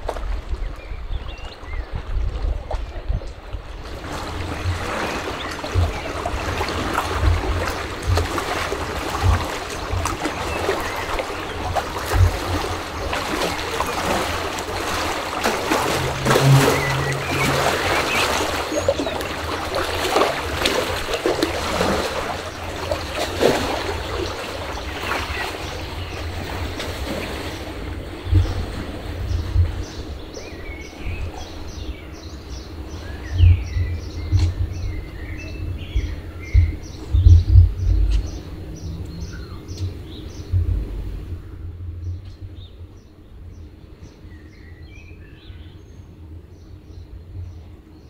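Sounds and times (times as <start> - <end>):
water lapping against stone wall: 0.0 - 41.6
low thumps: 15.4 - 19.3
brief low hum: 15.4 - 19.4.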